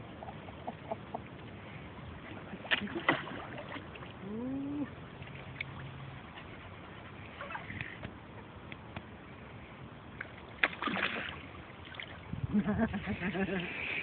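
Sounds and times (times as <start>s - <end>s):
fish splashing in water: 10.2s - 12.3s.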